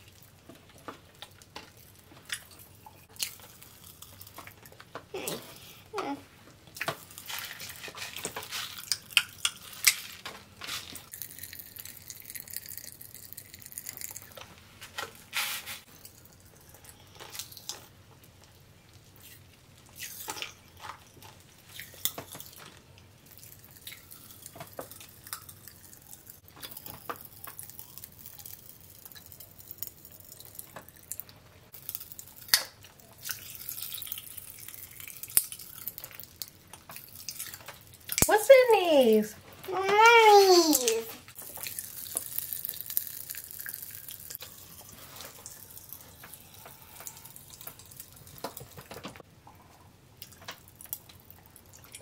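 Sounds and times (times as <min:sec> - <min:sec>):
candy crackling in mouth: 0:01.8 - 0:10.2, 0:10.9 - 0:14.5, 0:23.2 - 0:38.6, 0:39.7 - 0:49.0.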